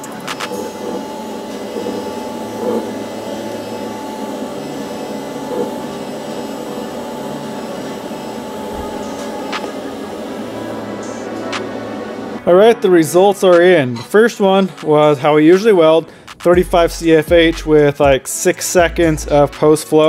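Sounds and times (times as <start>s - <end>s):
welding arc hissing: 0.0s - 12.4s.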